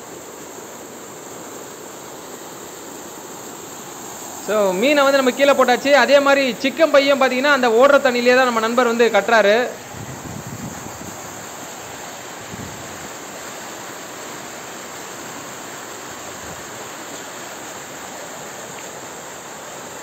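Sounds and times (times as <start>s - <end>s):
fast-flowing water rushing: 0.0s - 20.0s.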